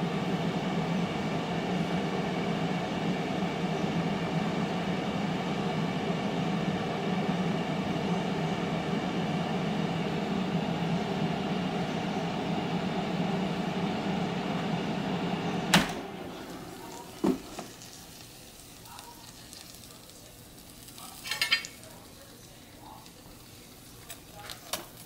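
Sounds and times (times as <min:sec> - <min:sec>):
air fryer fan hum: 0:00.0 - 0:25.0
air fryer switch click: 0:15.7 - 0:16.0.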